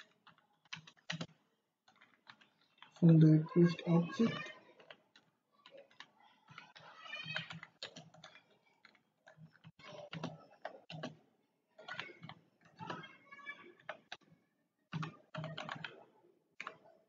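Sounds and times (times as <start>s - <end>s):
keyboard typing: 0.0s - 11.2s, 11.8s - 17.0s.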